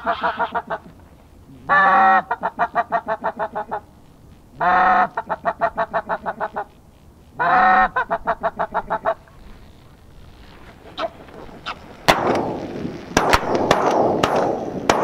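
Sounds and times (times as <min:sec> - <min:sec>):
goose honking: 0:00.0 - 0:01.0, 0:01.6 - 0:03.9, 0:04.6 - 0:06.8, 0:07.4 - 0:09.7, 0:10.5 - 0:12.1.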